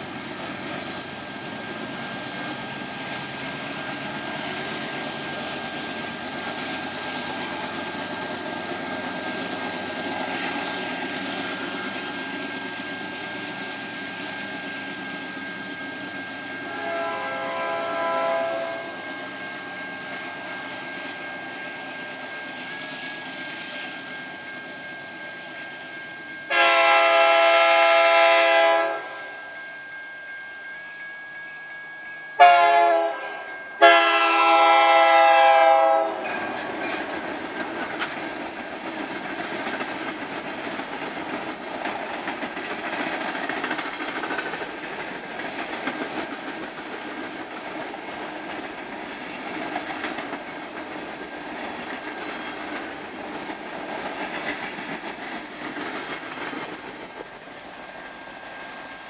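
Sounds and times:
train cars rumbling past: 0:00.0 - 0:59.0
locomotive chime horn blasts: 0:16.5 - 0:19.6, 0:26.4 - 0:36.3
wheels clicking over rail joints: 0:35.8 - 0:58.5.

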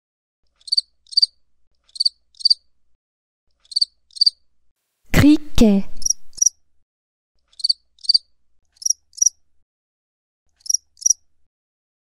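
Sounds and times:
grasshopper chirping: 0:00.6 - 0:02.6, 0:03.6 - 0:04.4, 0:06.0 - 0:06.6, 0:07.5 - 0:09.4, 0:10.6 - 0:11.2.

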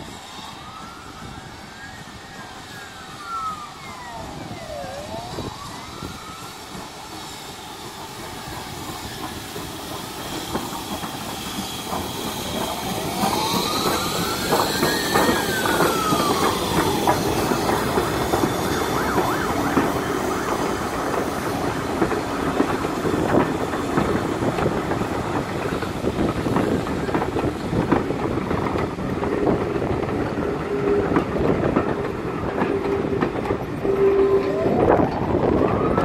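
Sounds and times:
high wheel squeal: 0:00.0 - 0:23.2, 0:30.2 - 0:35.9
steam hissing: 0:00.0 - 0:36.0
train wheels knocking over rail joints: 0:06.7 - 0:34.4.

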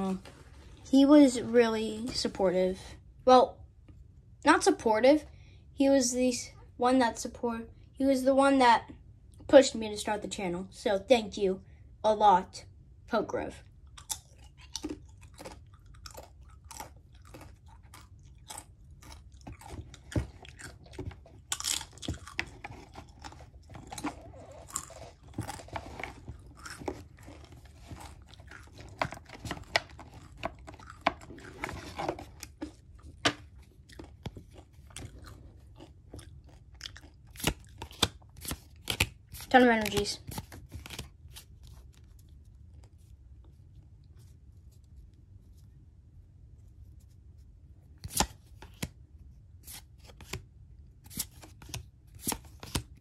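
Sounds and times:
chewing crunchy chips: 0:13.8 - 0:39.1.

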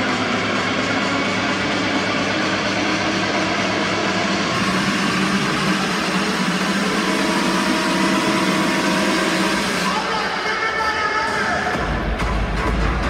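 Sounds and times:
building hum: 0:00.0 - 0:10.1
crowd murmur: 0:00.0 - 0:13.0.

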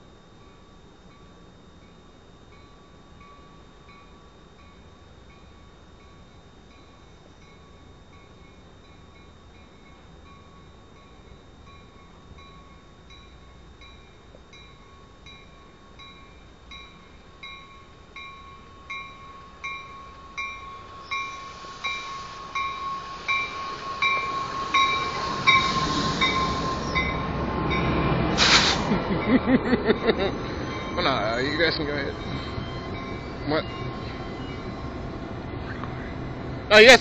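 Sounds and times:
steady whine: 0:00.0 - 0:37.0
train bell ringing: 0:00.0 - 0:37.0
wheels rumbling on rails: 0:15.0 - 0:37.0
short burst of hiss: 0:21.0 - 0:27.2, 0:28.3 - 0:29.0.

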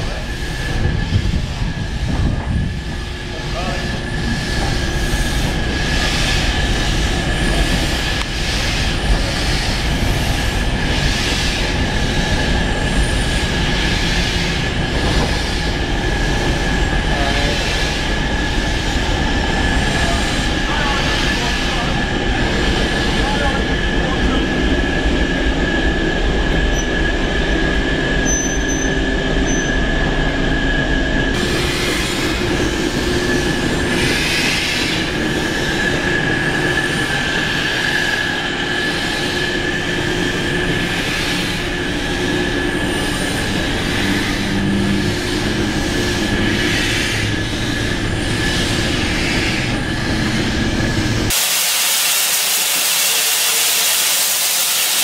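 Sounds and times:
diesel locomotive running: 0:00.0 - 0:55.0
high-pitched squeal: 0:25.2 - 0:55.0
steam hiss bursts: 0:51.3 - 0:55.0.

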